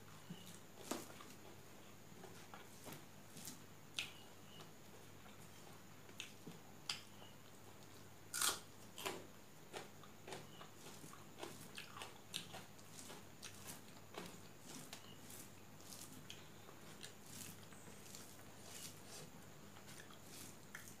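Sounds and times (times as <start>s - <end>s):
wet chewing with mouth clicks: 2.2s - 5.5s, 6.1s - 21.0s
fingers mixing rice on steel plate: 9.7s - 21.0s.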